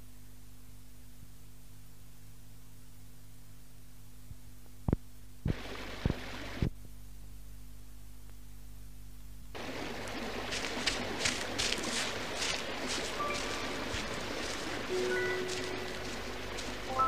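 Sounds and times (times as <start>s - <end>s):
steady low hum: 0.0s - 17.0s
broad rushing noise: 9.6s - 17.0s.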